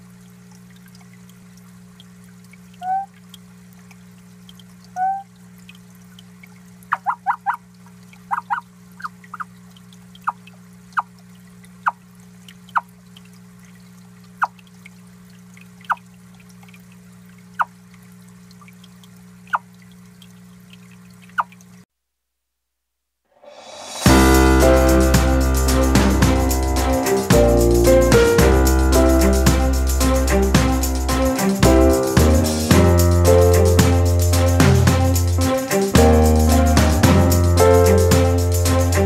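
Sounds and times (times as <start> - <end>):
water dripping plinks: 0.0 - 21.8
water trickling: 0.0 - 21.8
steady low hum: 23.7 - 39.0.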